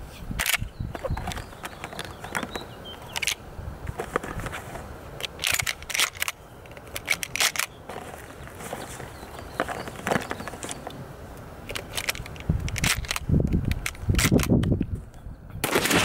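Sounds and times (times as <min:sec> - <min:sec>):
shotgun action metallic clicks: 0:00.4 - 0:03.4, 0:05.2 - 0:07.8, 0:10.0 - 0:15.0.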